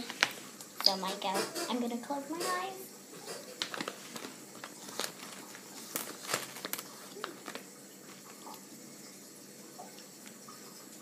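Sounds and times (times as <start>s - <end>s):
packaging crinkling: 3.4s - 8.7s
candies rattling: 3.6s - 8.4s.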